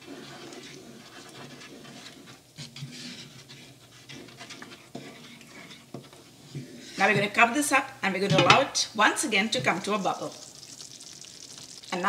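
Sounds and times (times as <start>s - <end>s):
spatula stirring thick curry: 0.0s - 7.1s.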